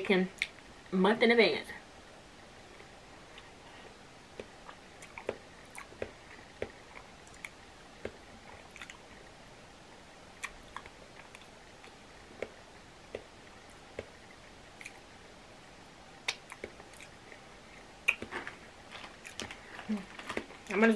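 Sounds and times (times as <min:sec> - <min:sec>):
person chewing: 0:02.8 - 0:09.0, 0:10.4 - 0:15.1, 0:16.2 - 0:20.5
wet mouth smacks and clicks: 0:14.8 - 0:15.0, 0:16.2 - 0:17.2, 0:18.0 - 0:18.3.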